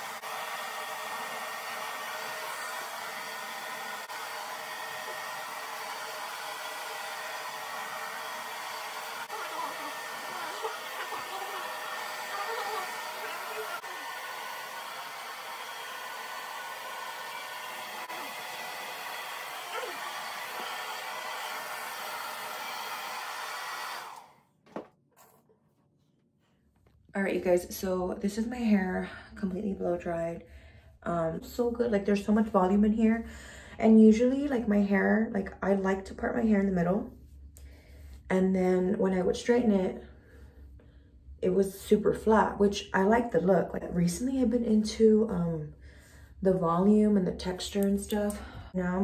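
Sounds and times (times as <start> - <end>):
hair dryer running: 0.0 - 24.4.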